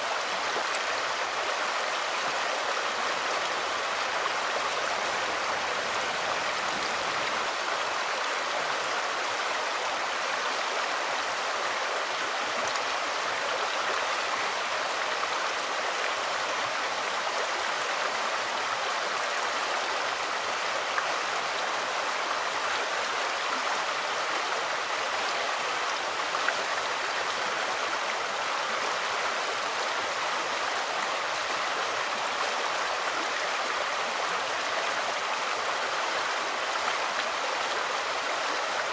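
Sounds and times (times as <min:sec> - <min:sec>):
stream running water: 0:00.0 - 0:38.9.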